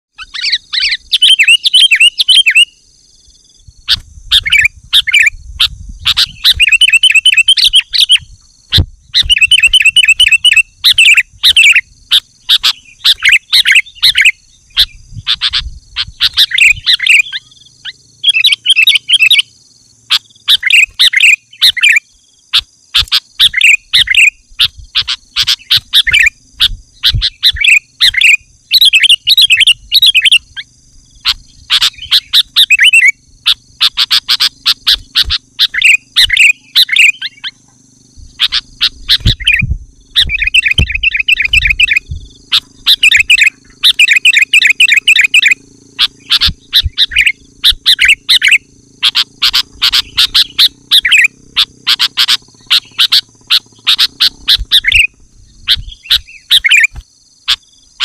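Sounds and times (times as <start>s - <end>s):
bulbul bubbly chattering song: 38.3s - 56.9s.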